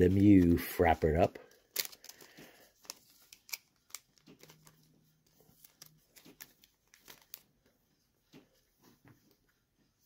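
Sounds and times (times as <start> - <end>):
plastic card sleeve crinkling: 0.0 - 7.8.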